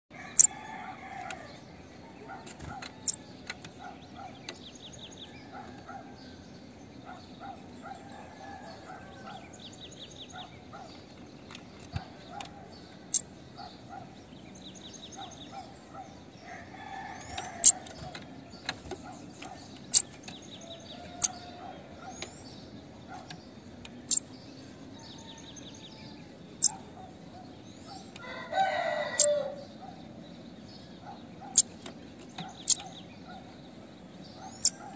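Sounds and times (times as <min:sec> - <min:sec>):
rooster crowing: 0:00.1 - 0:02.4, 0:07.8 - 0:09.6, 0:16.4 - 0:18.2, 0:20.6 - 0:22.1, 0:24.7 - 0:26.7, 0:28.2 - 0:29.8
buzzy bird trills: 0:00.3 - 0:00.6, 0:02.1 - 0:04.5, 0:11.7 - 0:14.1, 0:18.8 - 0:24.4, 0:26.5 - 0:27.2, 0:29.1 - 0:29.6, 0:31.4 - 0:33.6, 0:34.4 - 0:34.9.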